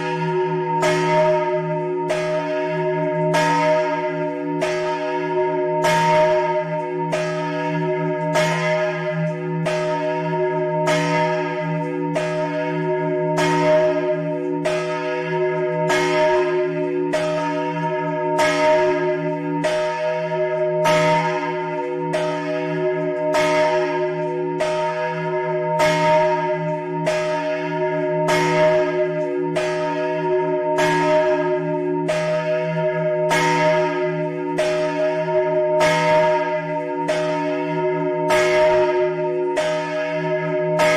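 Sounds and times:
large church bell pealing: 0.0s - 40.9s.

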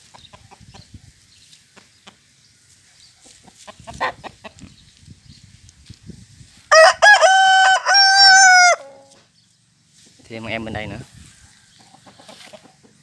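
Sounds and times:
rooster crowing: 6.7s - 9.1s.

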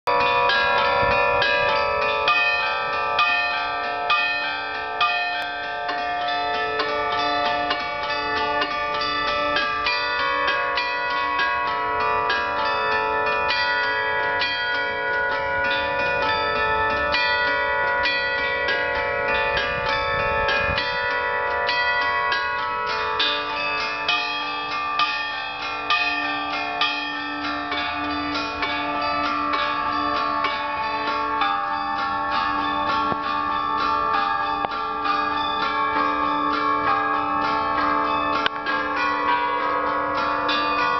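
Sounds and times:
bells playing a tune: 0.1s - 40.9s.

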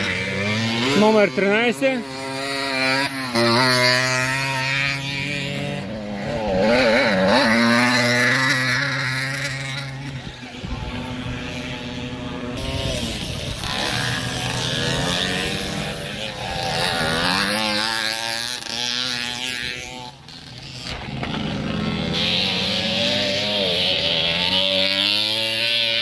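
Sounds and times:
motocross bike engines revving: 0.0s - 26.0s.

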